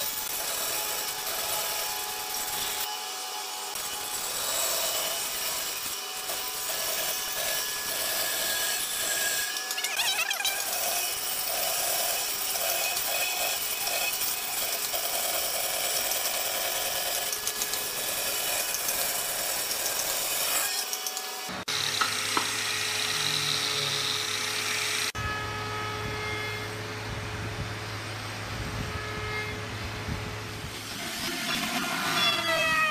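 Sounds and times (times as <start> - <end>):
band saw cutting wood: 0.0 - 26.9.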